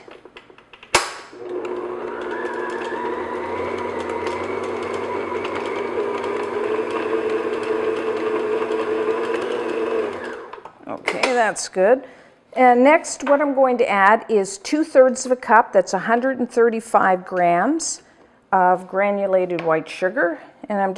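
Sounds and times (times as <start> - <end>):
stand mixer motor running: 1.4 - 10.6.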